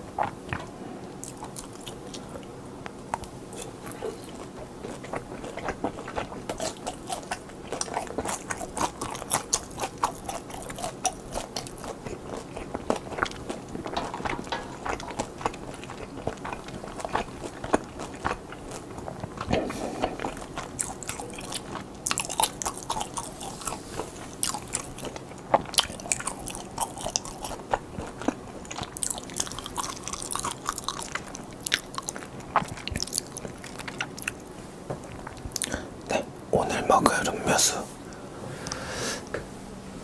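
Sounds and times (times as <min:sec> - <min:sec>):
crisp crunches of food: 0:03.2 - 0:34.4.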